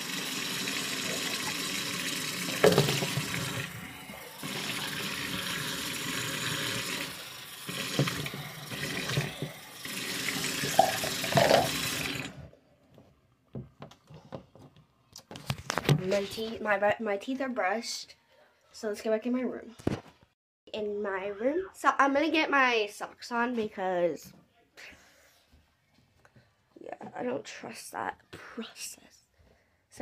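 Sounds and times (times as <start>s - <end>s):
tap running into sink: 2.4s - 3.7s, 7.7s - 9.6s, 10.2s - 12.3s.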